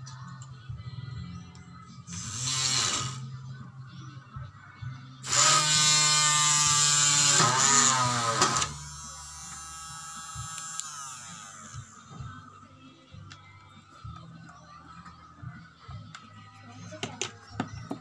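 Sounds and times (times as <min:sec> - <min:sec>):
drill winding down whine: 0:02.1 - 0:03.2, 0:05.2 - 0:12.1
electric drill running: 0:02.1 - 0:03.2, 0:05.2 - 0:12.2.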